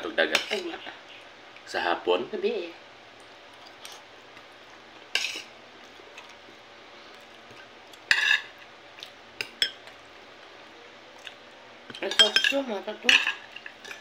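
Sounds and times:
cutlery scraping a plate: 5.1 - 5.5, 8.1 - 8.5.

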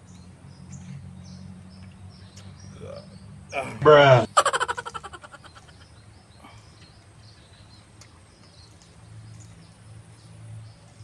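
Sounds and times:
bird chirps: 0.0 - 10.9.

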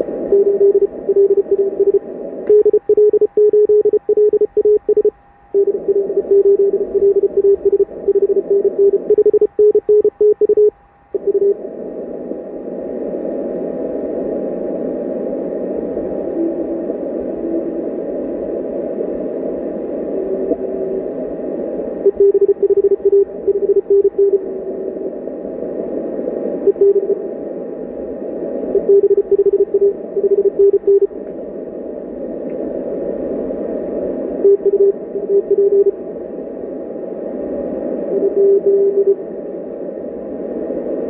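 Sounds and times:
radio band noise hiss: 0.0 - 41.0
faint steady whistle: 0.3 - 11.6, 16.2 - 17.8, 22.0 - 25.1, 26.6 - 27.3, 28.7 - 31.1, 34.4 - 36.0, 38.1 - 39.2
morse code tone: 0.3 - 11.6, 22.0 - 24.4, 26.7 - 27.2, 28.8 - 31.1, 34.4 - 36.0, 38.2 - 39.2.

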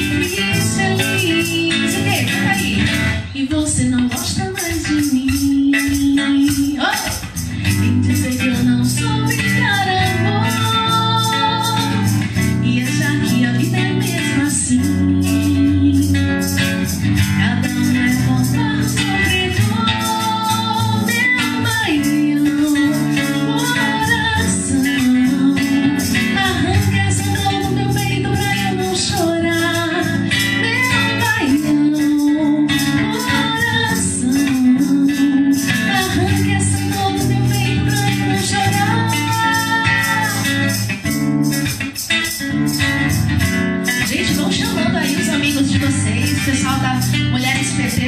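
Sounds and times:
woman singing into microphone: 0.0 - 41.0, 43.8 - 48.0
rhythmic guitar: 0.0 - 48.0.

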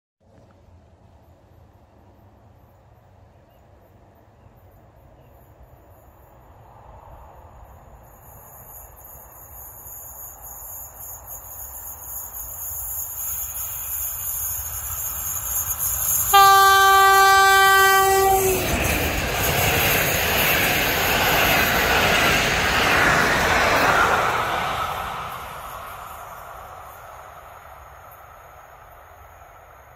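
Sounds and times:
train rushing past: 5.8 - 29.9
train horn blast: 16.3 - 19.1.

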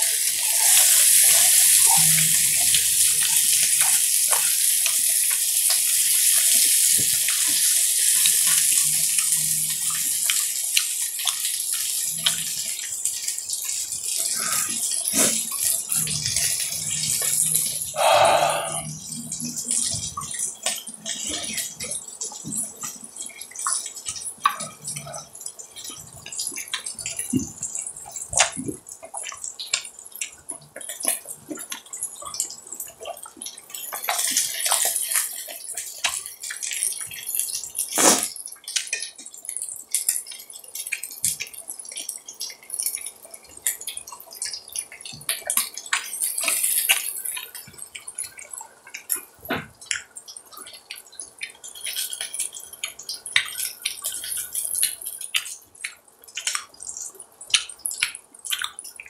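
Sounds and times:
meat sizzling on a griddle: 0.0 - 25.3, 33.6 - 48.2.

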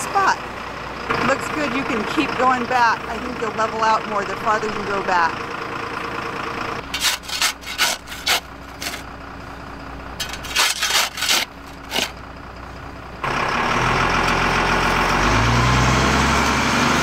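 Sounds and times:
bus engine running: 0.0 - 17.0
digging bar striking hard dirt: 6.8 - 9.1, 10.2 - 12.2.

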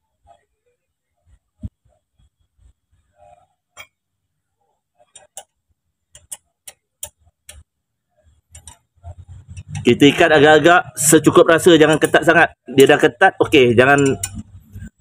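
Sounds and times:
spanner clicking on bolt: 5.1 - 5.5, 6.1 - 7.6, 8.5 - 8.8, 13.8 - 14.9.

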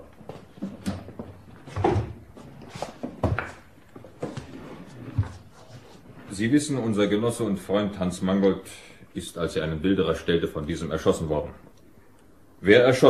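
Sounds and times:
wooden chairs knocking and scraping: 0.0 - 6.4.

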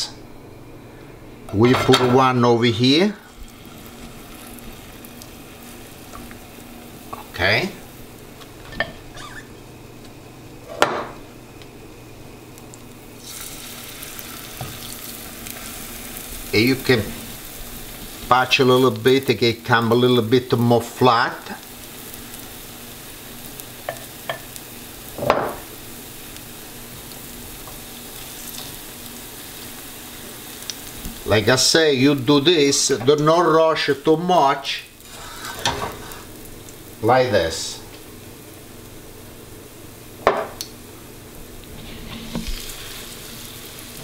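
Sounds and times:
pancakes sizzling in oil: 3.2 - 9.6, 12.4 - 44.0
spatula scraping pan: 41.7 - 42.8.

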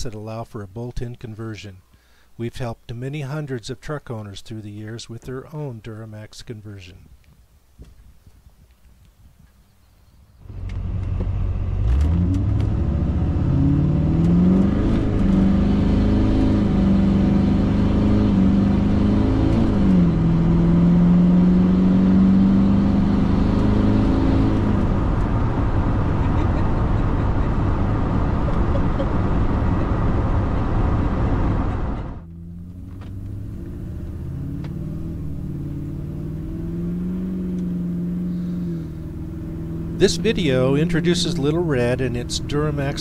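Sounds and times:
pickup engine accelerating: 10.4 - 43.0
road noise: 10.4 - 43.0.

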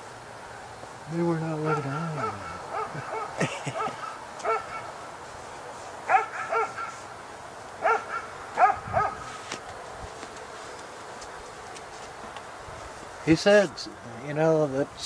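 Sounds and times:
dog barking: 1.6 - 4.9, 6.1 - 7.0, 7.8 - 9.3.

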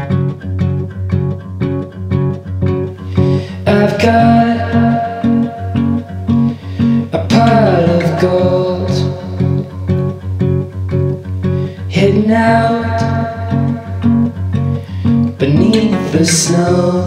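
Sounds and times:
song with plucked guitar: 0.0 - 17.0
person singing: 3.0 - 10.2, 11.5 - 17.0.

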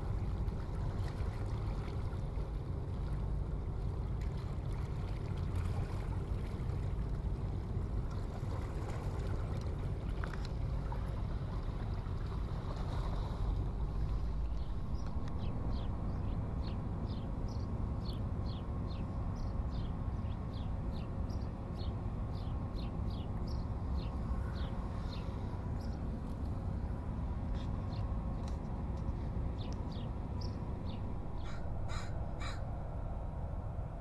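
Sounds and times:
steady low rumble: 0.0 - 34.0
harsh bird calls: 31.4 - 32.7.

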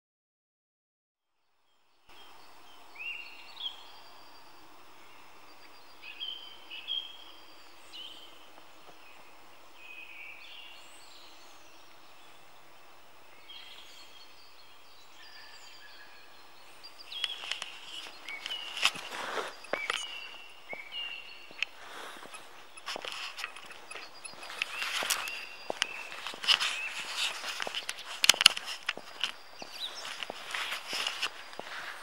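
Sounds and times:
steady background hiss: 2.1 - 32.0
wild birds calling: 2.1 - 32.0
footsteps on gravel: 16.8 - 32.0.

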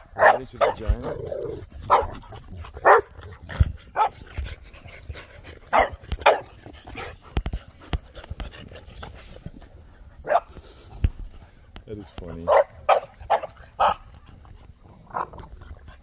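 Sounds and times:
dogs barking: 0.0 - 4.4, 5.6 - 7.1, 10.2 - 10.6, 12.3 - 14.4.

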